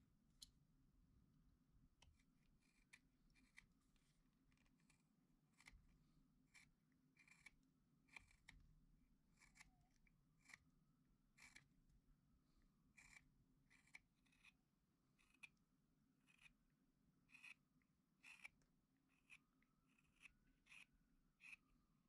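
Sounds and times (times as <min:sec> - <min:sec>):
knife whittling wood: 0:18.2 - 0:21.7.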